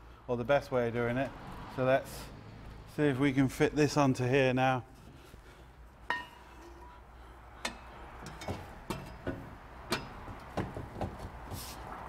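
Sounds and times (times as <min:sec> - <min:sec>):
metal exhaust pipes knocking: 0:06.0 - 0:11.5.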